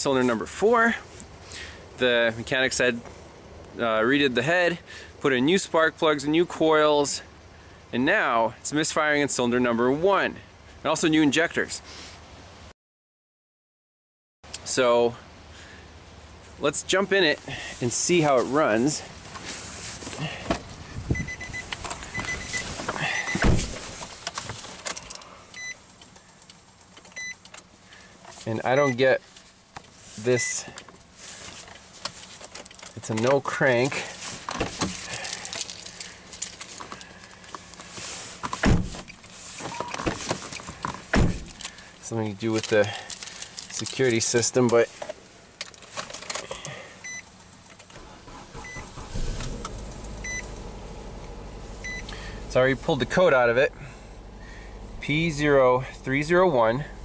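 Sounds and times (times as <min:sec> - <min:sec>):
car door shutting: 0:20.3 - 0:24.4, 0:38.5 - 0:41.6, 0:47.9 - 0:52.4
short electronic beep: 0:21.2 - 0:22.6, 0:51.8 - 0:52.1
car warning chime beeping: 0:21.2 - 0:23.4, 0:25.6 - 0:25.8, 0:27.2 - 0:27.4, 0:28.7 - 0:29.0, 0:47.0 - 0:47.3, 0:48.3 - 0:50.6, 0:51.8 - 0:52.2
car engine starting and idling: 0:46.2 - 0:57.0.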